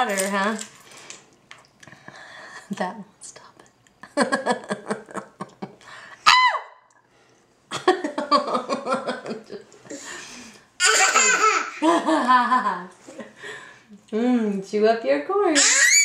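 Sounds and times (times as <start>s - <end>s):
baby laughing: 10.8s - 12.0s, 15.6s - 16.0s
baby squealing: 15.6s - 16.0s.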